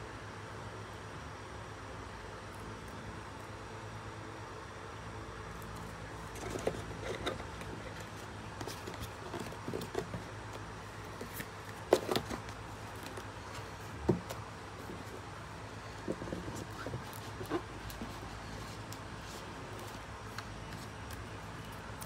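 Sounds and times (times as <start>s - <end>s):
steady low hum: 0.0s - 22.0s
cable and cardboard packaging rustling: 5.6s - 22.0s.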